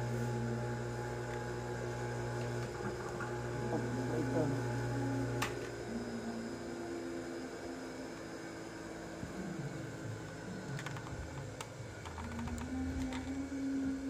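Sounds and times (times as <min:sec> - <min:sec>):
faint steady hum: 0:08.9 - 0:14.0.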